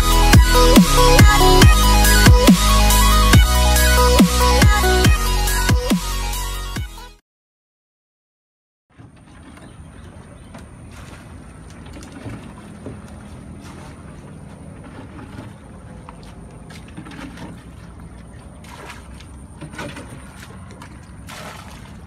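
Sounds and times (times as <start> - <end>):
water splashing and sloshing: 8.9 - 22.0.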